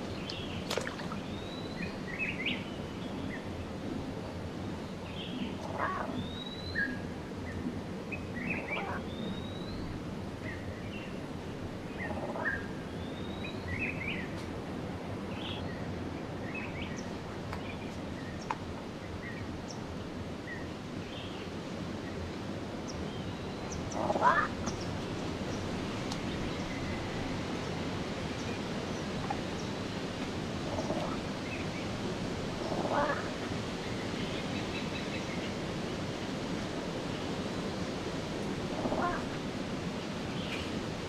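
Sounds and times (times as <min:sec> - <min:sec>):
low outdoor background noise: 0:00.0 - 0:41.0.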